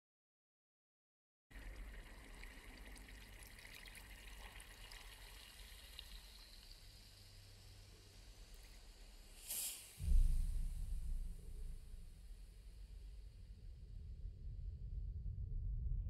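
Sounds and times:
water trickling: 1.5s - 9.3s
low rumble: 10.0s - 16.0s.

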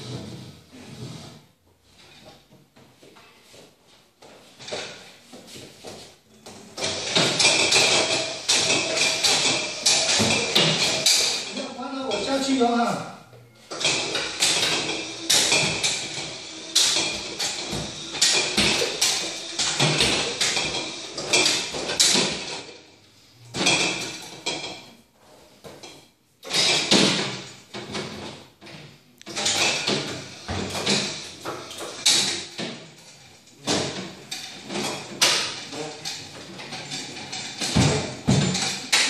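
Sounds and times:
wheels clunking on step edges: 4.4s - 12.8s, 13.7s - 22.8s, 23.5s - 39.0s
hand truck motor running: 6.5s - 12.5s, 13.7s - 22.7s, 26.5s - 39.0s.

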